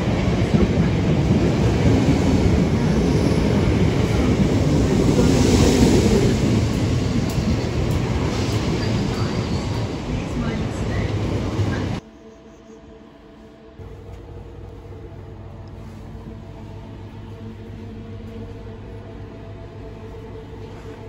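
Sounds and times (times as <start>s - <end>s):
electric train rumbling past: 0.0s - 21.0s.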